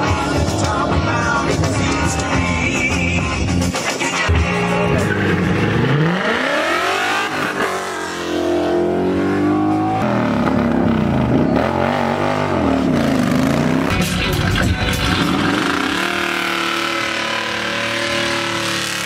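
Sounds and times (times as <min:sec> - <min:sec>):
car engine revving: 0:00.0 - 0:19.0.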